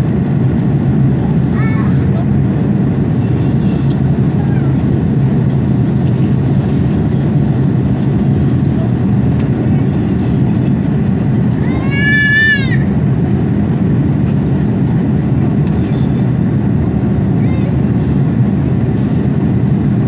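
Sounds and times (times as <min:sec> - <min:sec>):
airplane cabin engine noise: 0:00.0 - 0:20.0
high cry: 0:11.7 - 0:12.9.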